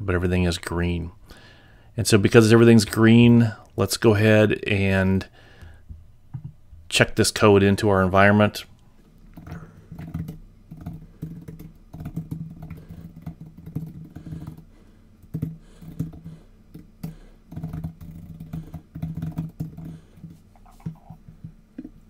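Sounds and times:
typing on computer keyboard: 9.4 - 21.2.

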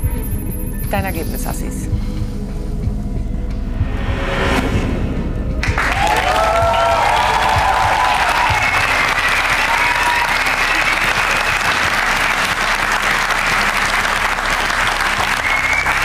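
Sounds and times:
audience applauding: 5.6 - 16.0.

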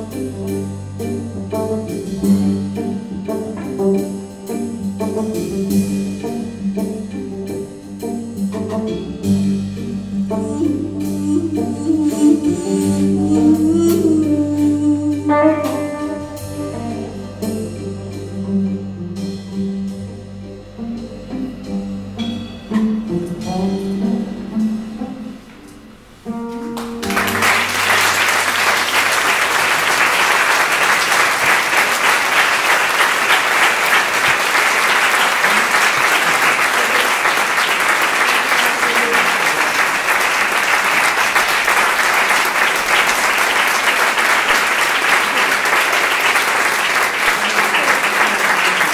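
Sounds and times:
live band playing: 0.0 - 48.9
audience applauding: 26.8 - 48.9.

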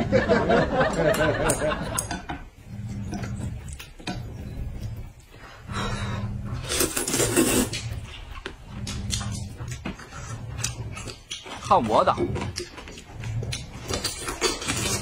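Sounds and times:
low hum: 0.0 - 15.0
person slurping noodles: 5.6 - 8.3.

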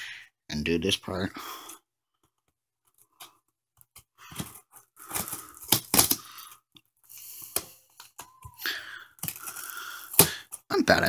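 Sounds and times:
tape and cardboard tearing: 4.5 - 6.4.

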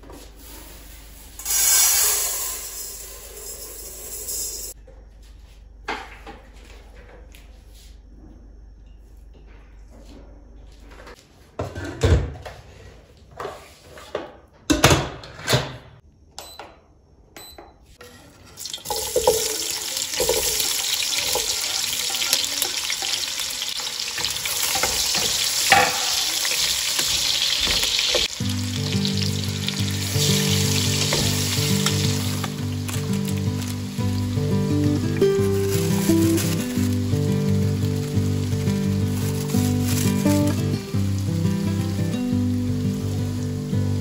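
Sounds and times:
onions sizzling in hot oil: 1.4 - 3.6, 18.5 - 44.0
background music: 28.3 - 44.0.

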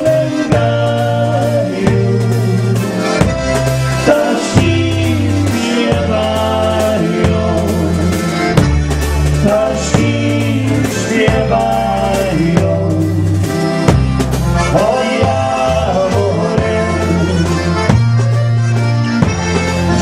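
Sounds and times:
man singing into a microphone: 0.0 - 3.2, 4.0 - 8.2, 9.4 - 13.6, 14.7 - 17.7
drum kit: 0.0 - 20.0
electric bass guitar: 0.0 - 20.0.

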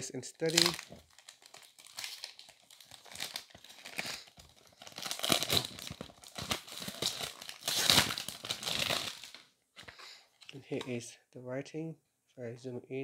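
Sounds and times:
cellophane crinkling and tearing: 0.4 - 9.5.

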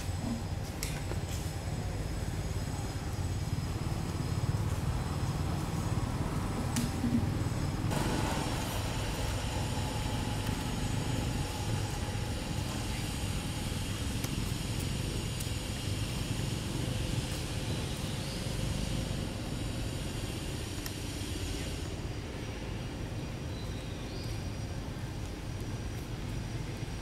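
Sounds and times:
low rumble: 1.4 - 23.8.

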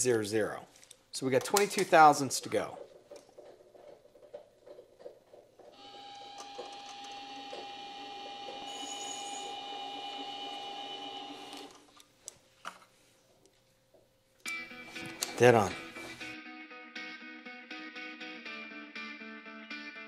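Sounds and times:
mini lathe whining: 5.7 - 11.8.

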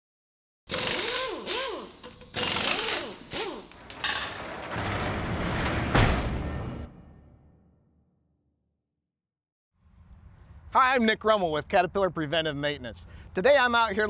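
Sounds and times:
metal roller shutter rumbling: 3.8 - 6.9
heavy clunk: 3.8 - 7.0.

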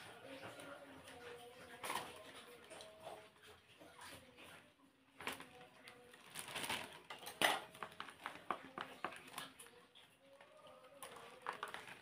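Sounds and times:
plastic bag crinkling: 5.2 - 9.8, 10.5 - 12.0.

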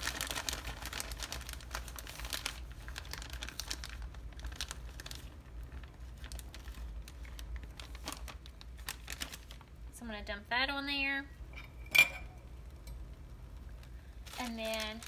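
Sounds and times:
plastic bag crinkling: 0.0 - 9.8, 13.7 - 15.0.

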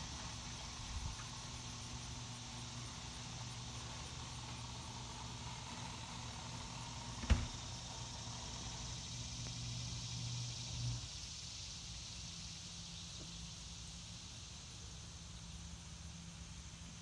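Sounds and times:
engine humming: 0.0 - 11.2
high hiss: 0.0 - 17.0.

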